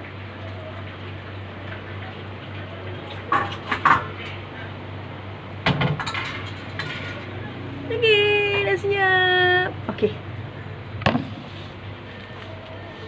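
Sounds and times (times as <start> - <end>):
steady background hum: 0.0 - 13.0
metal pot clattering against bowl: 3.2 - 4.3, 5.7 - 7.3.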